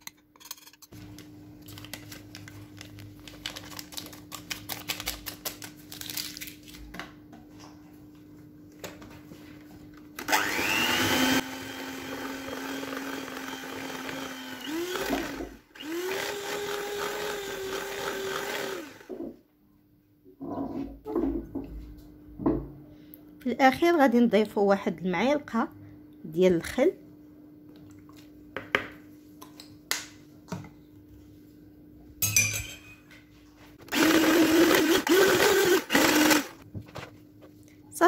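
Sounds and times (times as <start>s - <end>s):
electric hand mixer whine: 10.2s - 19.2s, 33.9s - 36.6s.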